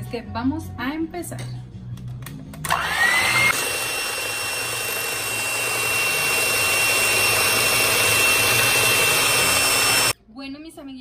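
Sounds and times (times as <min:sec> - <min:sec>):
electric hand mixer whining: 0:02.7 - 0:10.2.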